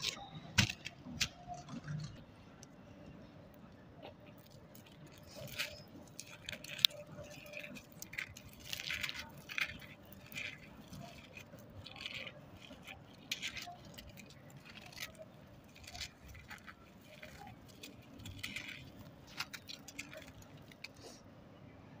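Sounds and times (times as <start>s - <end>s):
grains trickling: 4.3s - 21.1s.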